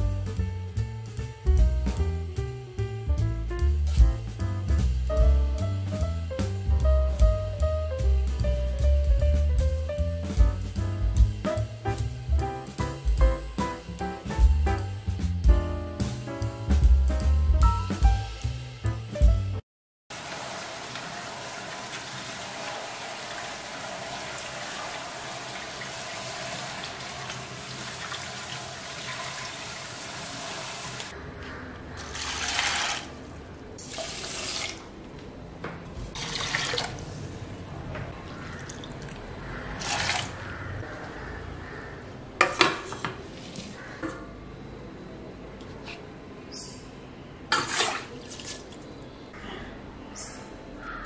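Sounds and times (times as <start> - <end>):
tap water running into strainer: 20.1 - 31.1, 32.1 - 33.1, 33.8 - 34.9.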